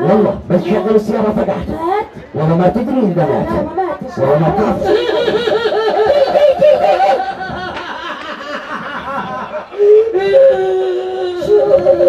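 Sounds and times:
person laughing: 4.8 - 10.2
long held vocal cry: 9.8 - 12.0.

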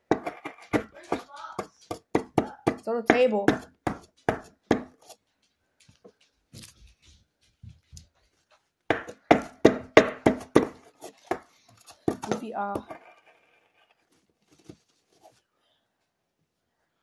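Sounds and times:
hand pick knocking: 0.0 - 5.2, 8.9 - 11.5, 12.1 - 13.0.

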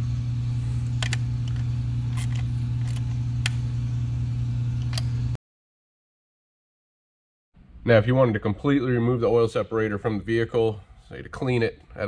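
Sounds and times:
steady low hum: 0.0 - 5.4.

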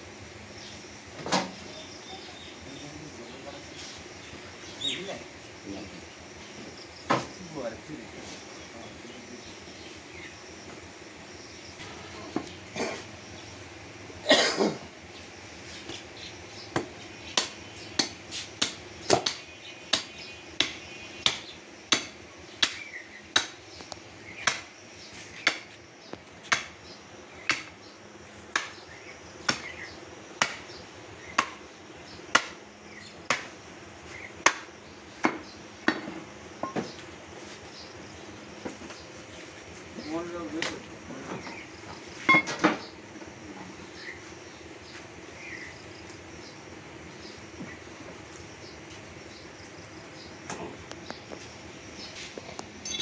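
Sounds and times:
cleaver chopping bone on wood: 16.7 - 23.6, 24.4 - 24.7, 25.4 - 25.8, 26.5 - 26.8, 27.4 - 27.8, 28.5 - 29.8, 30.4 - 31.7, 32.3 - 32.6, 33.3 - 33.5, 34.4 - 36.1.

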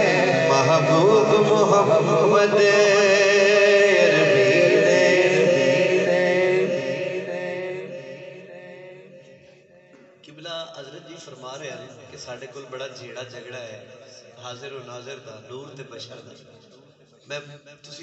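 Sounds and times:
man singing into a microphone: 0.0 - 9.4.

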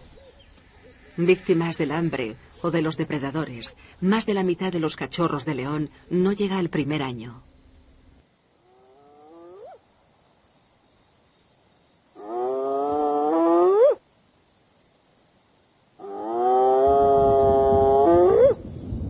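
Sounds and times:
hyena whooping: 16.0 - 18.6.

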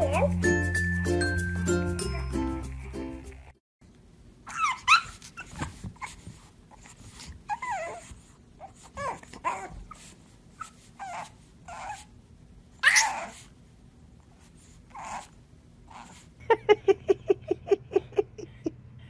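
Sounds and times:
puppy whining: 0.0 - 0.6, 4.5 - 12.2, 12.8 - 13.5, 14.9 - 16.3.

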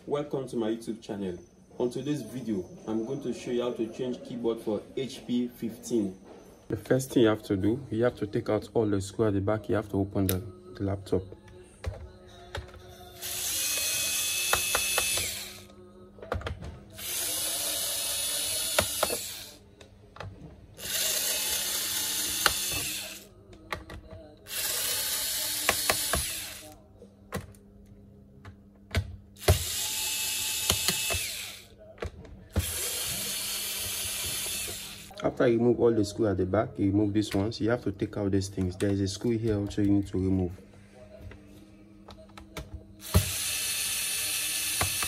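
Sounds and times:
electric screwdriver whirring: 13.2 - 15.7, 17.0 - 19.6, 20.8 - 23.3, 24.5 - 26.8, 29.4 - 31.7, 32.6 - 35.2, 43.0 - 45.0.

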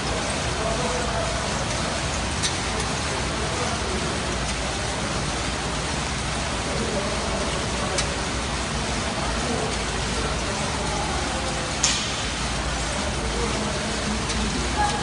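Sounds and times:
faint voices: 0.0 - 15.0
steady rushing noise: 0.0 - 15.0
sharp loud clack: 11.8 - 12.4.

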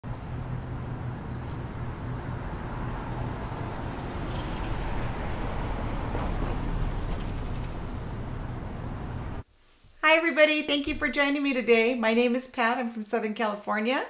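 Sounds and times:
street traffic rumble: 0.0 - 9.4.

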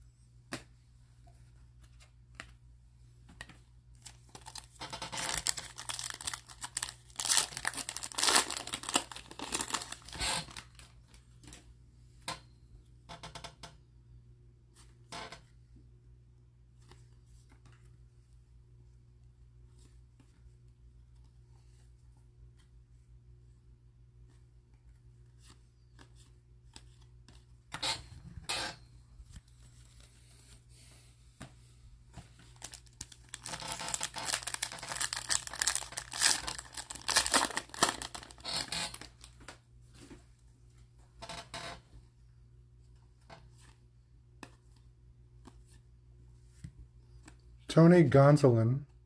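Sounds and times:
wrapper tearing and crinkling: 4.3 - 10.8, 32.6 - 39.3.

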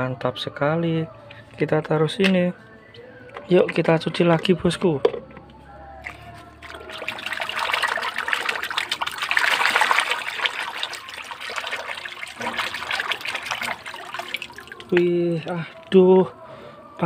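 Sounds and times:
water sloshing in a plastic tub: 6.0 - 15.9.

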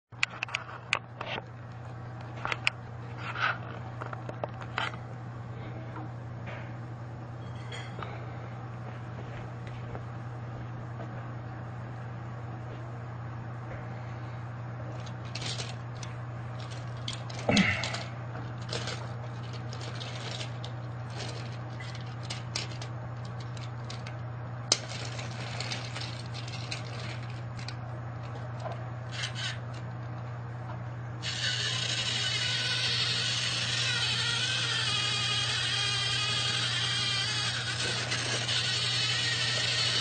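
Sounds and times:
steady low hum: 0.1 - 40.0
toy pieces clattering: 15.0 - 24.1.

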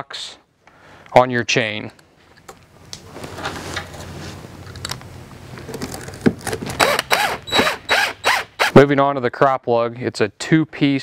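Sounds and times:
low steady hum: 0.0 - 11.0
cordless drill motor spinning: 6.8 - 8.8.

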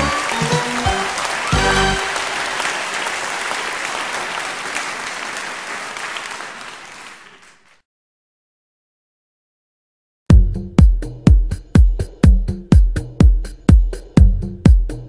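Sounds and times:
music: 0.0 - 2.8, 10.3 - 15.0
audience applauding: 0.0 - 7.8.

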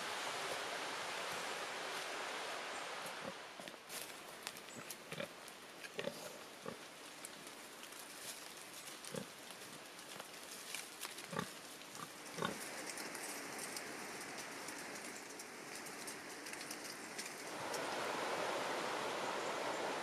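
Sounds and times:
faint hiss with clicks: 0.2 - 20.0
steady rushing noise: 12.6 - 20.0.

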